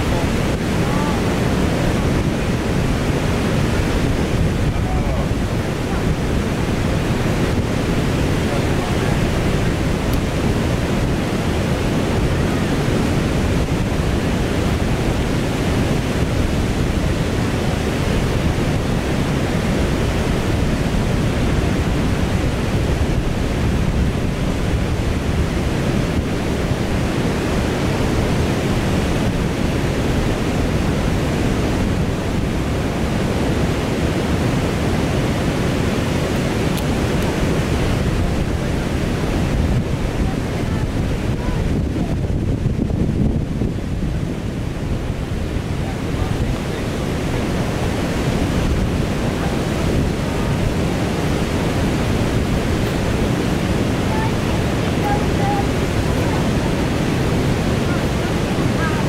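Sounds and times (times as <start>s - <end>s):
river water rushing over rapids: 0.0s - 59.0s.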